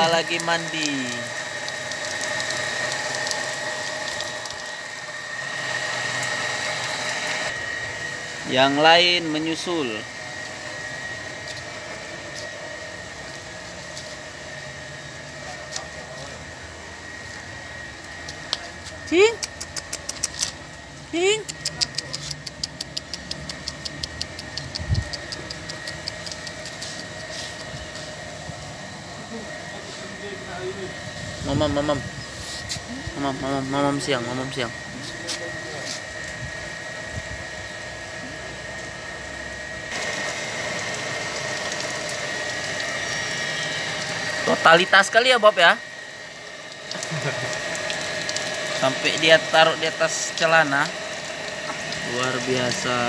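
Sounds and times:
water splashing onto concrete: 0:00.0 - 0:05.0, 0:39.9 - 0:43.2, 0:46.5 - 0:53.0
steady machine hum: 0:00.0 - 0:53.0.

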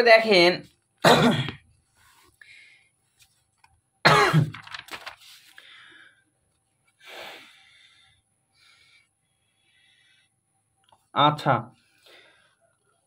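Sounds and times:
person coughing: 0:01.0 - 0:01.6, 0:04.0 - 0:04.6
book page rustling: 0:04.5 - 0:05.6.

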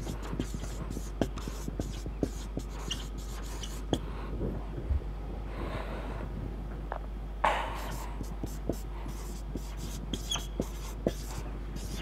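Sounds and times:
marker pen writing on whiteboard: 0:00.0 - 0:04.0, 0:07.5 - 0:12.0
steady low hum: 0:00.0 - 0:12.0.

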